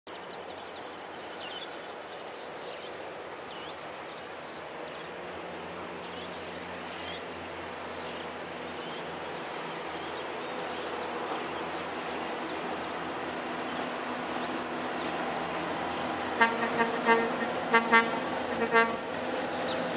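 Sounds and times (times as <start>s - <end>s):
steady outdoor hiss: 0.1s - 19.9s
birds chirping: 0.4s - 19.9s
diesel railcar engine drone: 5.0s - 19.9s.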